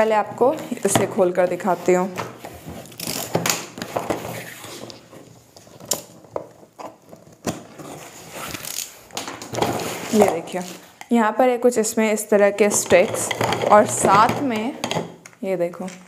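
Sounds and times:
cardboard scraping and rustling: 0.4s - 10.8s
packing tape ripping: 2.8s - 4.8s, 6.8s - 9.2s.

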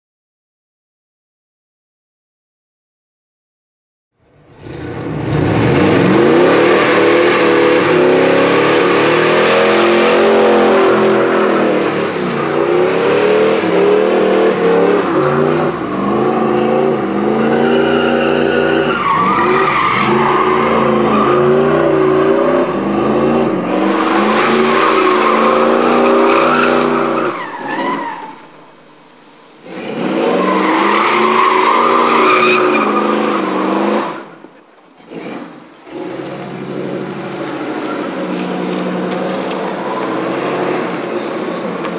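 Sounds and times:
car engine at high revs: 4.2s - 41.9s
tyres squealing on pavement: 6.2s - 28.9s, 29.6s - 41.9s.

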